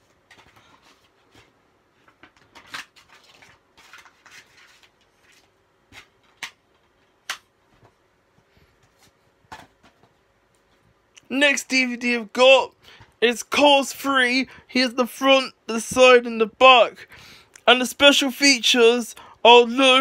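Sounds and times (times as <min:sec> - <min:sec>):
paper rustling: 0:00.0 - 0:10.8.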